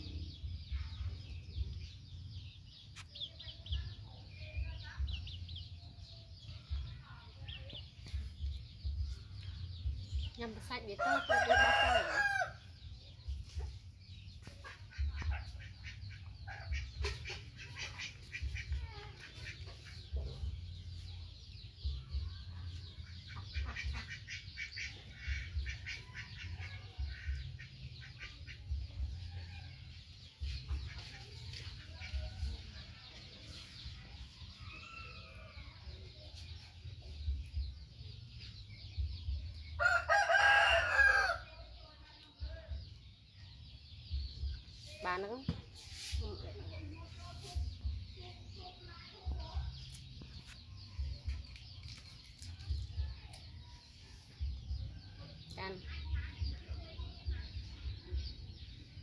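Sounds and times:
rooster crowing: 0:11.0 - 0:12.6, 0:39.8 - 0:41.4
chicken clucks: 0:14.4 - 0:20.5.

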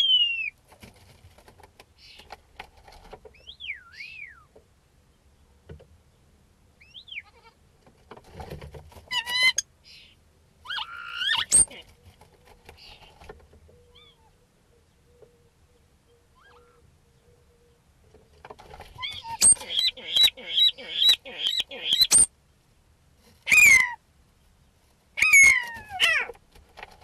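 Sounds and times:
starling singing: 0:10.7 - 0:11.8, 0:19.0 - 0:22.3.

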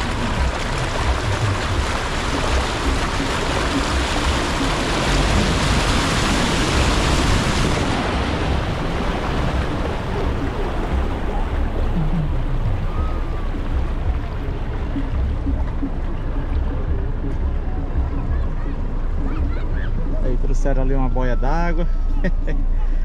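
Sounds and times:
flowing water rushing: 0:00.0 - 0:23.0.

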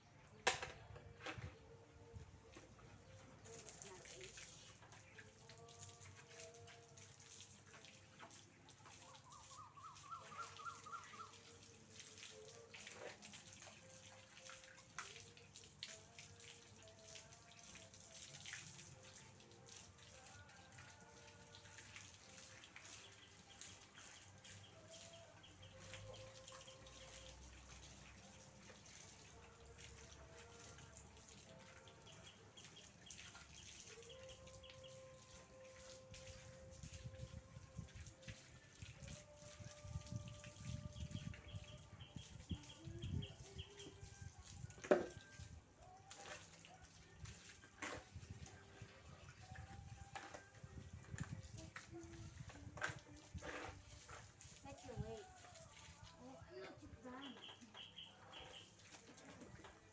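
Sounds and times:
water trickling from a hose: 0:00.0 - 0:59.9
birds chirping: 0:09.0 - 0:11.6, 0:57.0 - 0:58.9.

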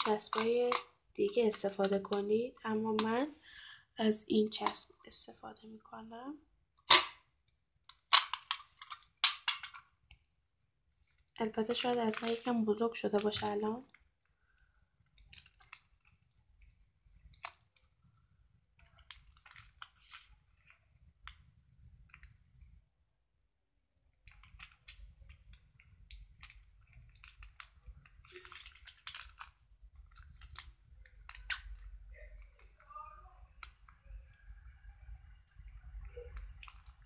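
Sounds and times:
paper crackling and rustling: 0:11.1 - 0:13.7, 0:24.2 - 0:34.6.

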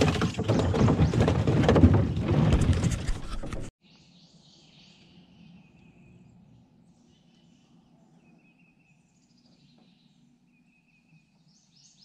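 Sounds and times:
rustling and crackling on microphone: 0:00.0 - 0:03.7
faint bird chirps: 0:03.8 - 0:12.0.

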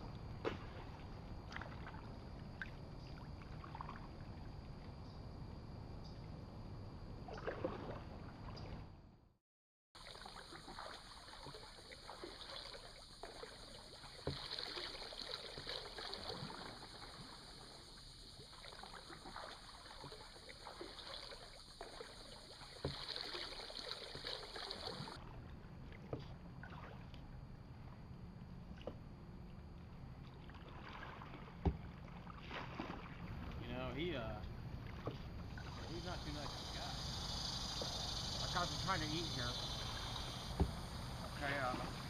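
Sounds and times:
paddle splashing water: 0:00.0 - 0:05.0, 0:07.2 - 0:08.9, 0:10.0 - 0:42.0
paddle knocking hull: 0:10.7 - 0:16.9, 0:19.2 - 0:25.2, 0:31.3 - 0:36.9, 0:37.7 - 0:42.0
high insect buzz: 0:35.6 - 0:42.0.

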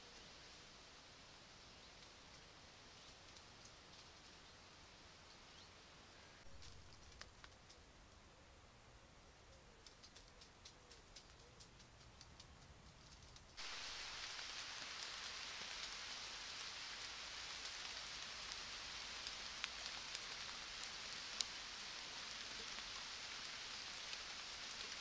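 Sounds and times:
steady hiss: 0:00.0 - 0:25.0
sharp drip-like clicks: 0:02.0 - 0:04.1, 0:09.8 - 0:13.6
faint high ticking: 0:09.8 - 0:25.0.

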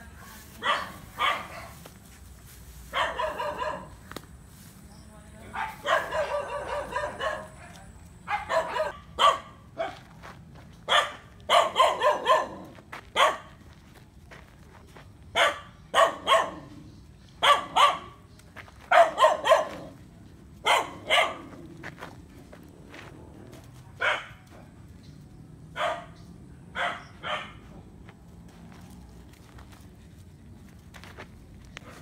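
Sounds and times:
dog barking: 0:00.6 - 0:01.8, 0:02.9 - 0:04.0, 0:05.5 - 0:10.0, 0:10.9 - 0:13.6, 0:15.3 - 0:16.7, 0:17.4 - 0:18.2, 0:18.9 - 0:20.0, 0:20.6 - 0:21.6, 0:24.0 - 0:24.5, 0:25.8 - 0:26.2, 0:26.8 - 0:27.7.

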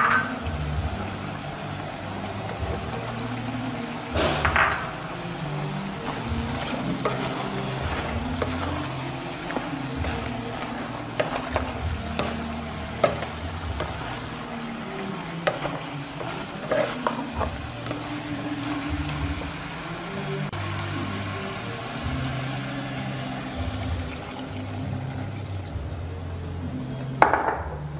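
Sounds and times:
food sizzling: 0:00.0 - 0:27.4
wooden spatula scraping a metal pot: 0:05.6 - 0:19.8.

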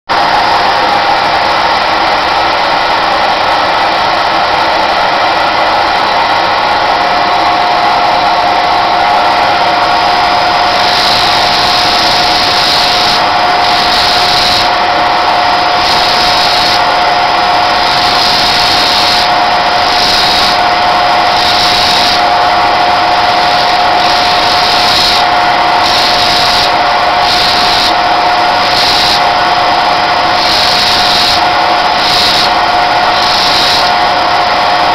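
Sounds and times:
motor spinning sanding disc: 0:10.1 - 0:34.9.

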